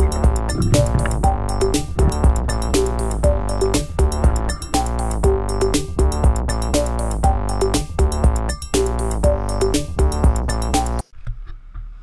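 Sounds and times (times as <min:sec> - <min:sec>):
sustained synthesizer chords: 0:00.0 - 0:08.4
steady drum beat: 0:00.0 - 0:10.4.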